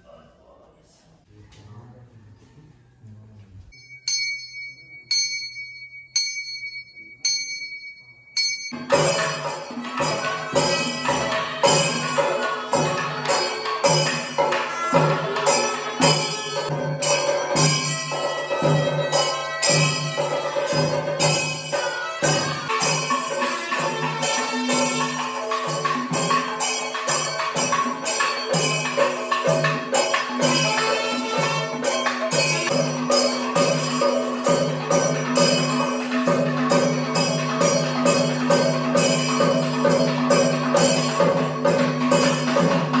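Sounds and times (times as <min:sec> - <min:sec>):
steady held tones: 0:02.4 - 0:43.0
cymbals: 0:03.7 - 0:43.0
ringing metal percussion strikes: 0:03.7 - 0:43.0
drums beaten fast: 0:08.8 - 0:43.0.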